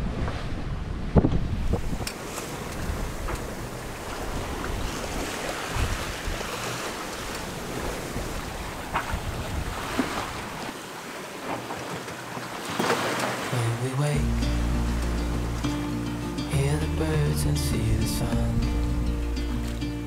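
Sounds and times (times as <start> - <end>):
wind buffeting microphone: 0.0 - 10.7
waves washing: 0.0 - 20.0.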